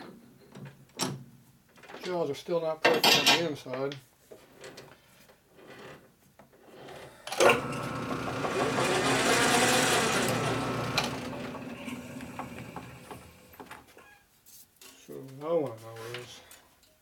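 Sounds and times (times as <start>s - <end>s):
lathe starting clunk: 7.2s - 13.8s
metal lathe whining and humming: 7.3s - 13.7s.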